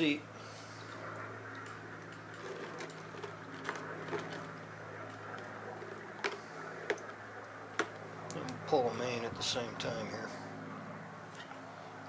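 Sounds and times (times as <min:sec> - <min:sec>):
steady low hum: 0:00.0 - 0:12.0
small parts clicking and tapping: 0:05.1 - 0:08.5.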